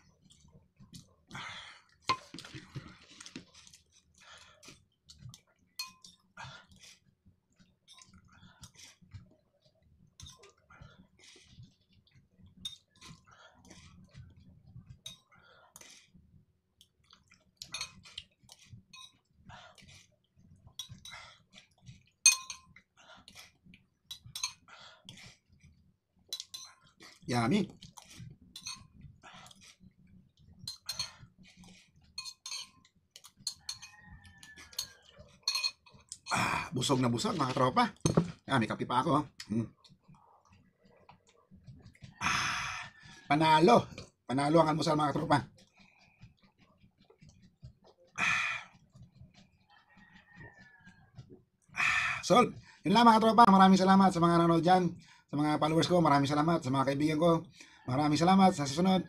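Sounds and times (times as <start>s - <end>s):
chewing: 0.0s - 38.5s, 39.2s - 53.3s
metal spoon scraping in a bowl: 17.6s - 18.0s, 24.1s - 24.6s, 28.6s - 29.0s, 30.7s - 31.3s, 32.0s - 36.3s.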